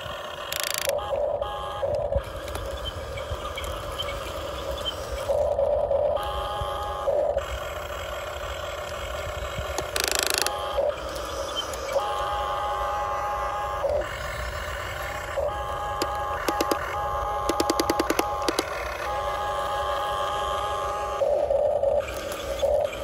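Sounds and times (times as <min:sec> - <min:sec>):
toy excavator motors whining: 0:00.0 - 0:23.0
quick clicks: 0:09.8 - 0:10.6, 0:16.0 - 0:18.8.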